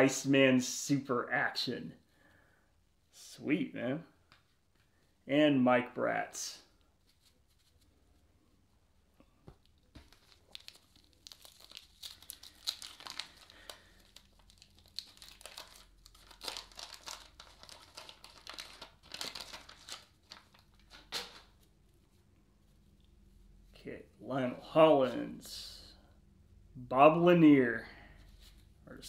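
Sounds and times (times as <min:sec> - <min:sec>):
waxed paper wrapper crinkling: 0:06.8 - 0:08.3, 0:09.5 - 0:21.8.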